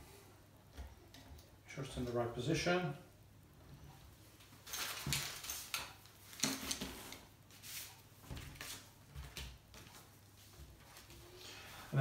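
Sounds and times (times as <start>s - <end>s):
plastic bag crinkling: 4.6s - 6.8s.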